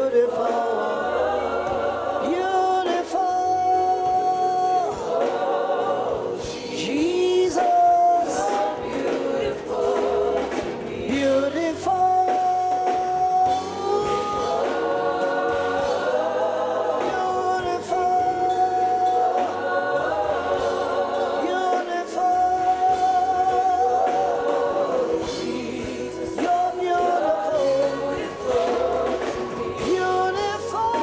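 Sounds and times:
choir singing in harmony: 0.0s - 31.0s
male lead singer: 2.2s - 5.0s, 6.6s - 8.9s, 11.1s - 14.8s, 17.0s - 19.6s, 21.4s - 31.0s.

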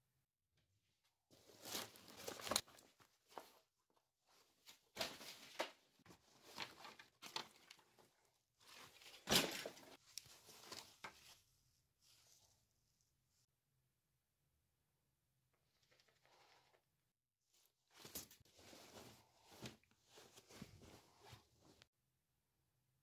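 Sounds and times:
fabric rustling: 17.7s - 21.9s.

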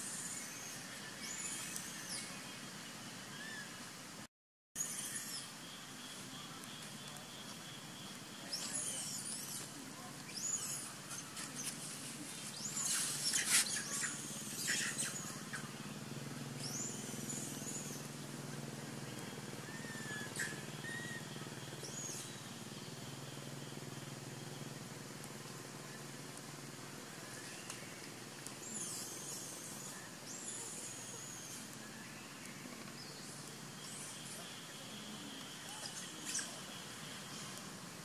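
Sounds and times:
baby monkey squealing: 19.7s - 21.2s.

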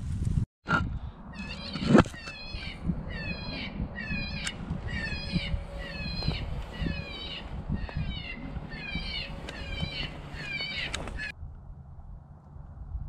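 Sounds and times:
electronic animal distress call: 1.4s - 11.3s.

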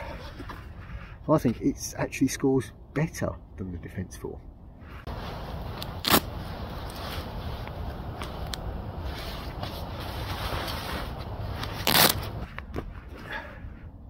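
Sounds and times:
low wind rumble: 0.0s - 14.0s
sleeping bag fabric rustling: 5.1s - 12.5s.

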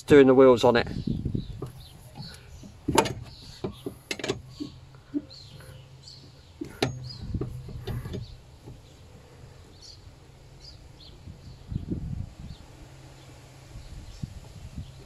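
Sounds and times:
faint birds chirping: 0.0s - 15.0s
metal bar knocking and scraping: 1.6s - 8.9s.

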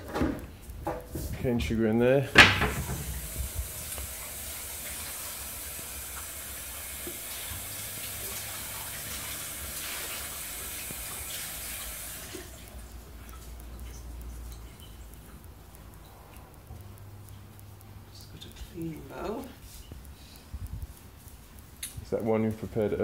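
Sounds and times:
kitchen tap running: 2.2s - 15.0s.

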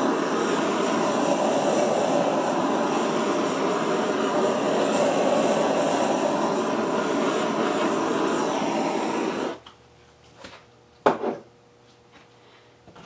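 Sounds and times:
small air blower whirring: 0.0s - 9.7s.

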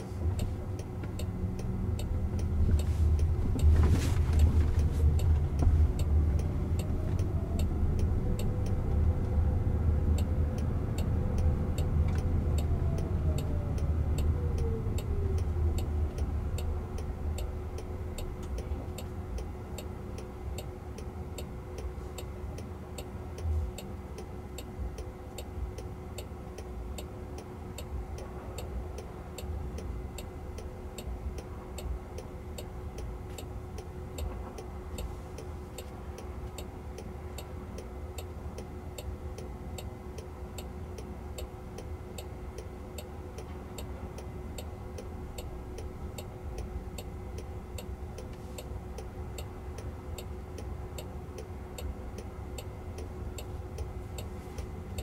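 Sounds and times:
car turn signal ticking: 0.0s - 55.0s
low cabin hum: 0.0s - 55.0s.

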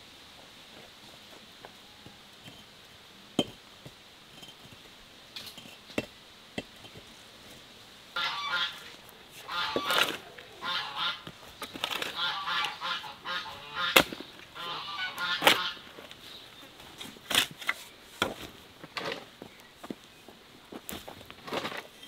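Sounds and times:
geese honking: 8.2s - 11.4s, 12.0s - 15.9s
shovel scraping into soil: 13.4s - 19.3s, 20.9s - 22.0s.

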